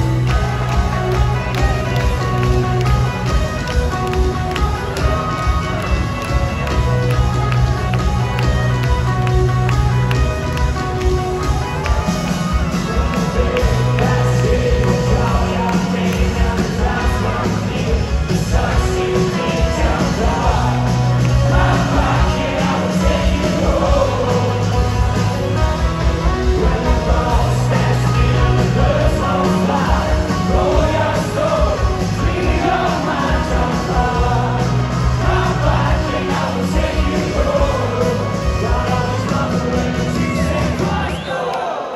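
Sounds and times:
live rock band playing: 0:00.0 - 0:41.2
person singing: 0:11.9 - 0:41.9.

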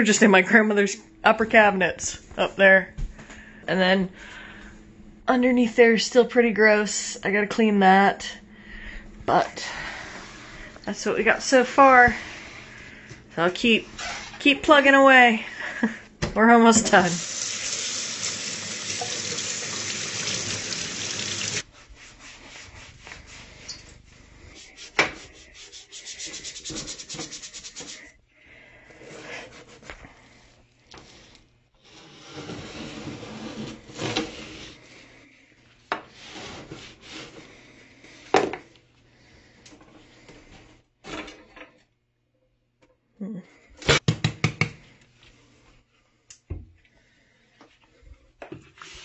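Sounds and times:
scrub brush scrubbing countertop: 0:17.0 - 0:28.1.

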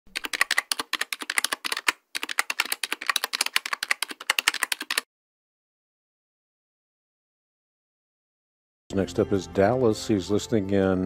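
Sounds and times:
keystroke clicks: 0:00.1 - 0:05.0.

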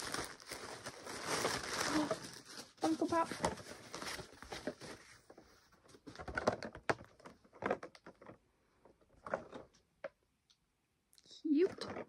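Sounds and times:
plastic bag rustling and crackling: 0:00.0 - 0:05.3.

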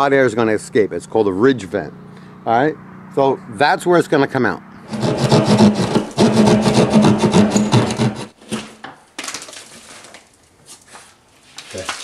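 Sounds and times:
hand saw cutting drywall: 0:04.9 - 0:08.8
drywall snapping: 0:04.9 - 0:10.9.

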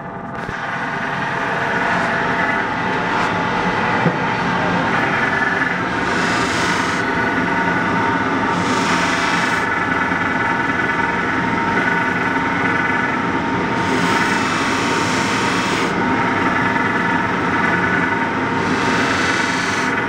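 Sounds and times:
buffing wheel whine: 0:00.0 - 0:20.0
steel blade polishing hiss: 0:18.6 - 0:19.9.

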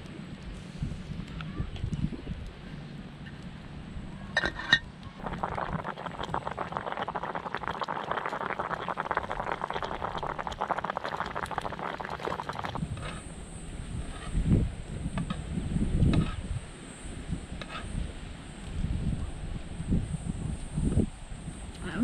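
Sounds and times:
soup boiling with bubbling crackle: 0:04.3 - 0:19.0
metal pot lid clinking: 0:04.4 - 0:04.9.

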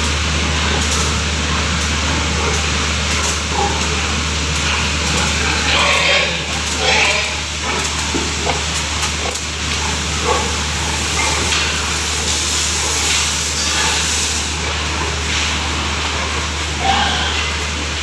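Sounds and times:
power sprayer hissing: 0:06.3 - 0:15.9.

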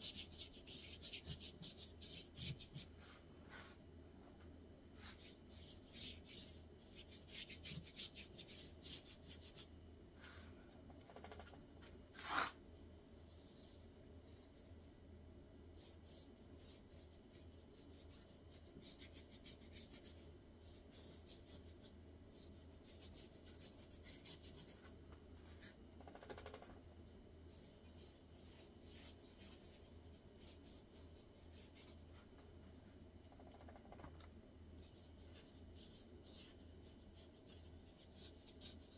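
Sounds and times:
paintbrush rubbing on paper: 0:00.0 - 0:03.8, 0:04.9 - 0:09.7, 0:15.7 - 0:25.8, 0:27.5 - 0:32.3, 0:34.8 - 0:38.9
steady low hum: 0:00.0 - 0:38.9.

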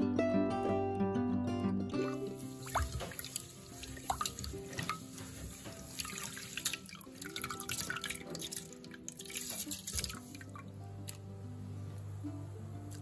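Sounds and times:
background music: 0:00.0 - 0:13.0
water sloshing and dripping: 0:02.0 - 0:11.2.

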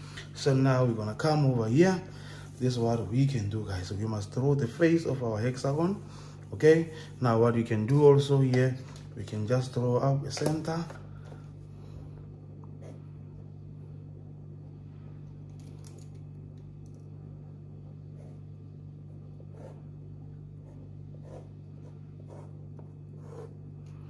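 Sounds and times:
steady low hum: 0:00.0 - 0:24.0
pencil scratching on paper: 0:12.8 - 0:13.1, 0:18.0 - 0:23.7.

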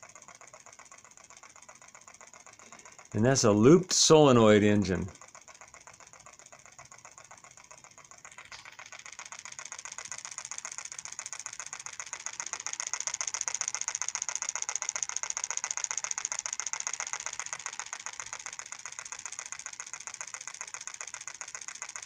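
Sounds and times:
solenoid engine clicking: 0:00.0 - 0:22.0.

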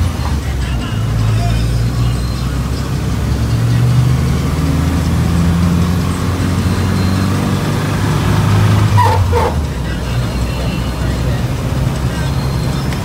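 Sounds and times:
minibus engine droning: 0:00.0 - 0:13.0
road noise: 0:00.0 - 0:13.0.

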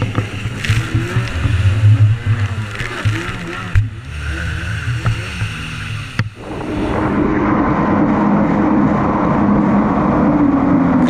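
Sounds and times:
jet ski engine running: 0:00.0 - 0:11.0
water and wind rushing: 0:00.0 - 0:11.0.

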